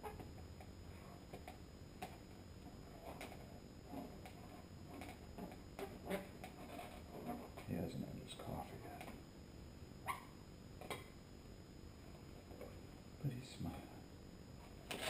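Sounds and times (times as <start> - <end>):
balloon creaking: 14.8 - 15.0.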